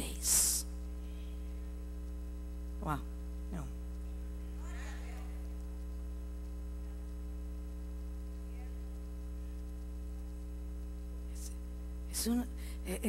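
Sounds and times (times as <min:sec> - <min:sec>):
electrical mains hum: 0:00.0 - 0:13.0
faint voice murmuring: 0:04.5 - 0:05.5.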